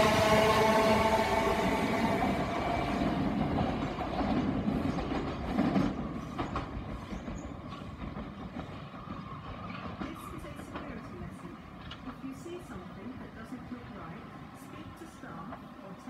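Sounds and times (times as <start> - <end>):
train rumble: 0.0 - 16.0
train wheels clicking over rail joints: 2.4 - 12.4.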